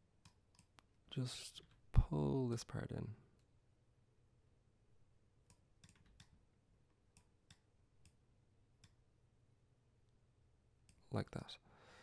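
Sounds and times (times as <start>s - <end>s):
computer mouse clicks: 0.2s - 0.9s, 5.5s - 6.4s, 8.8s - 9.0s.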